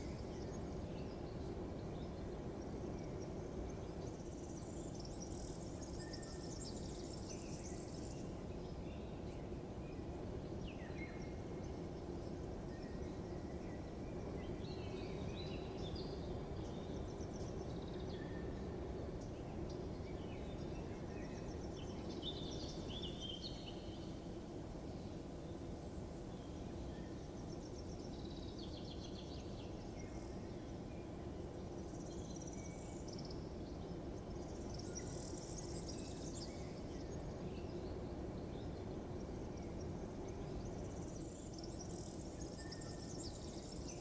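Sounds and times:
small birds chirping: 0.0 - 44.0.

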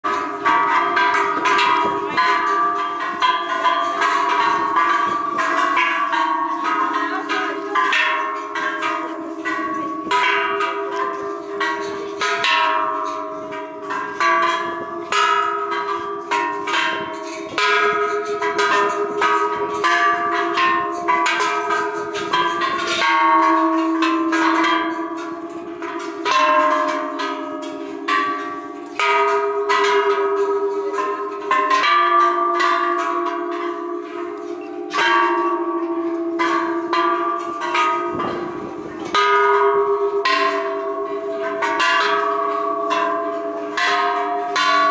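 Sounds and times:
large bells ringing: 0.0 - 44.9.

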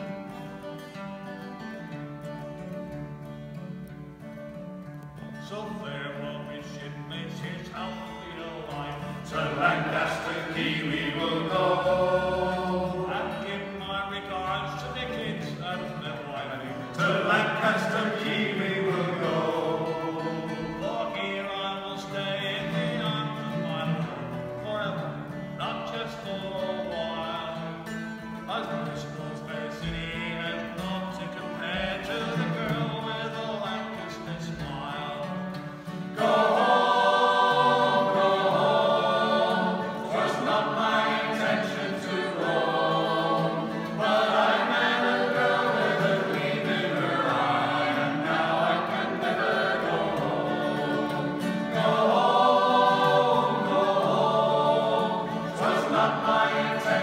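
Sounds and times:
strummed acoustic guitar: 0.0 - 57.0
male voices singing in harmony: 5.4 - 57.0.

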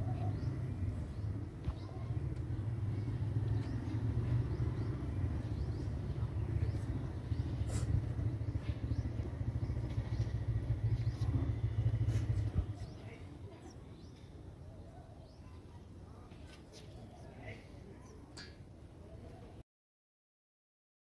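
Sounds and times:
loud low fluttering rumble: 0.0 - 13.8.

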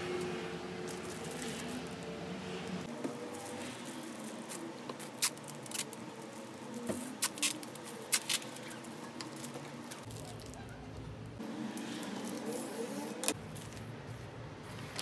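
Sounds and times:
cellophane wrap crinkling: 0.8 - 2.1, 3.2 - 10.7
adhesive tape ripping: 4.2 - 10.4.

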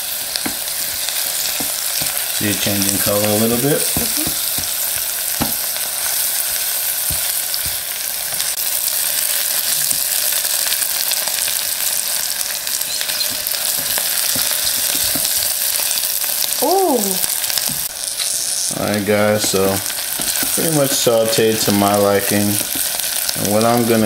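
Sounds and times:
onions sizzling in oil: 0.0 - 24.0
spatula stirring in a pot: 19.2 - 21.8.

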